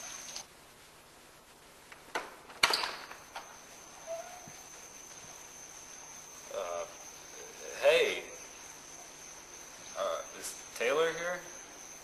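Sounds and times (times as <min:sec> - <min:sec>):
crickets chirping: 0:00.0 - 0:00.4, 0:02.6 - 0:12.0.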